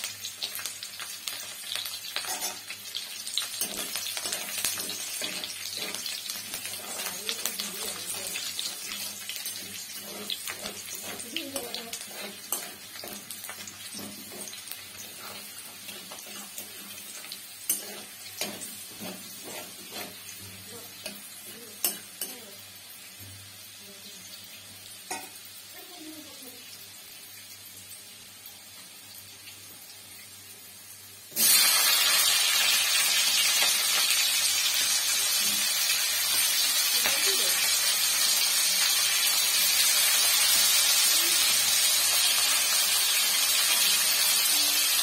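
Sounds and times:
oil sizzling in a pan: 0:00.0 - 0:45.0
vegetables sizzling loudly: 0:00.0 - 0:45.0
spatula scraping metal pan: 0:02.2 - 0:02.7, 0:03.5 - 0:22.3.

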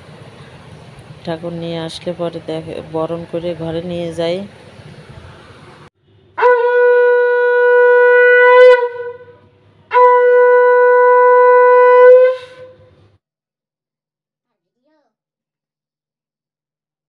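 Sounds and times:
conch shell blasts: 0:06.3 - 0:12.9.

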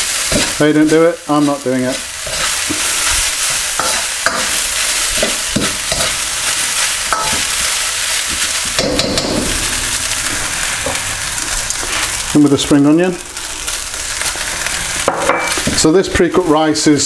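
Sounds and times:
rice sizzling in a wok: 0:00.0 - 0:17.0
metal ladle scraping a wok: 0:02.1 - 0:12.4.

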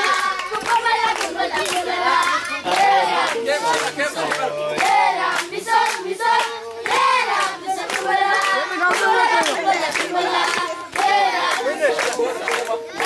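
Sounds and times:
children singing together: 0:00.0 - 0:03.8, 0:04.6 - 0:13.0
children clapping rhythm: 0:00.0 - 0:13.0.

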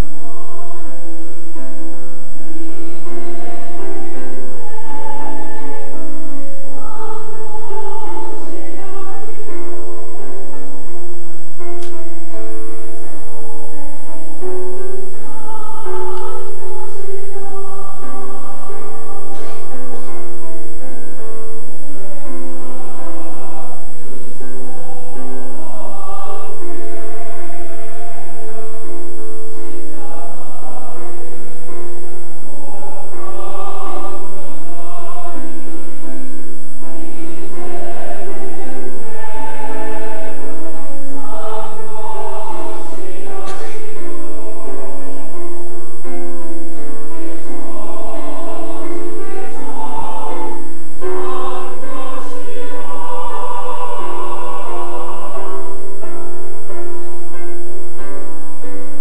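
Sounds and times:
grand piano: 0:00.0 - 0:59.0
mixed choir singing: 0:00.0 - 0:59.0.

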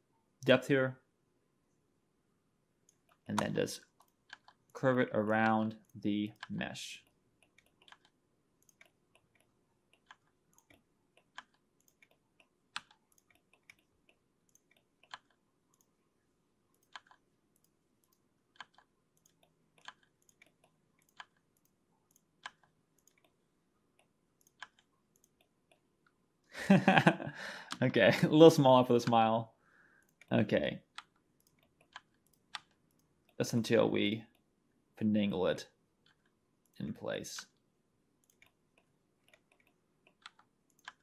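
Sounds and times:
mouse and keyboard clicks: 0:05.4 - 0:15.9, 0:16.8 - 0:23.4, 0:24.0 - 0:25.8, 0:39.2 - 0:41.0.

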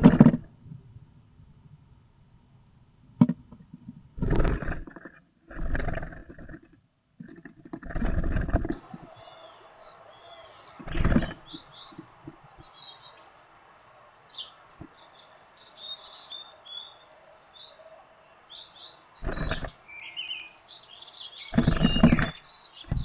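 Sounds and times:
birds chirping: 0:03.4 - 0:23.0.

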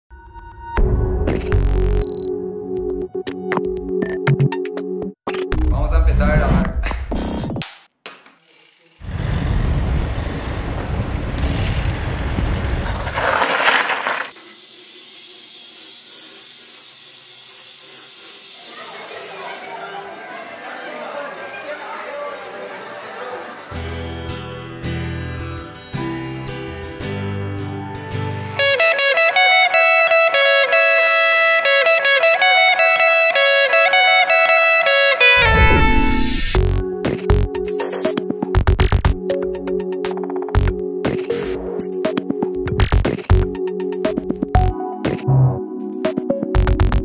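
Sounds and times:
bicycle drivetrain rumbling and ratcheting: 0:08.4 - 0:09.2, 0:10.7 - 0:19.4
strummed passage: 0:23.6 - 0:36.8
plucked guitar-like run: 0:23.7 - 0:41.3.

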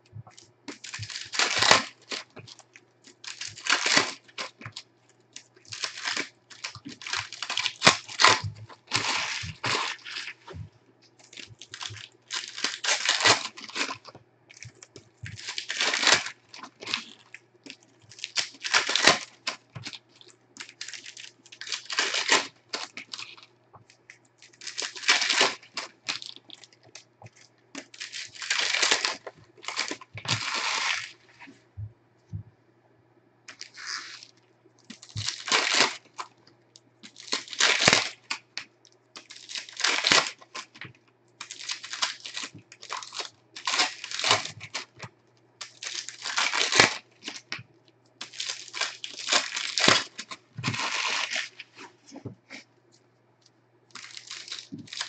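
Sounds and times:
foil packs tearing and crinkling: 0:00.3 - 0:04.9, 0:05.6 - 0:23.5, 0:24.4 - 0:31.3, 0:33.5 - 0:34.3, 0:34.9 - 0:36.3, 0:37.0 - 0:38.6, 0:39.2 - 0:47.6, 0:48.2 - 0:52.6, 0:53.9 - 0:55.0.

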